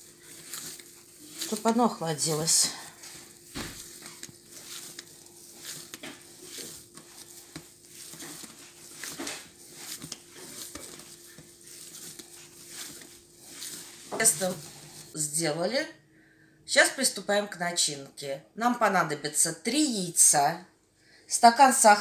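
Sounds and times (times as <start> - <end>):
hands patting dough: 0.0 - 15.2.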